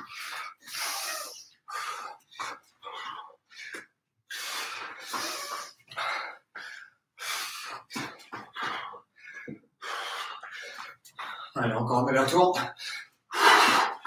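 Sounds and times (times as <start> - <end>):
man breathing hard: 0.0 - 11.6, 12.6 - 14.0.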